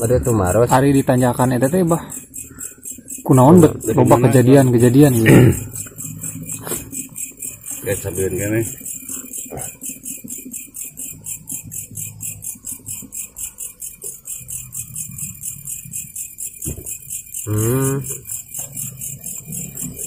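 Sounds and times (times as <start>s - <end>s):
night insects chirping: 0.0s - 20.0s.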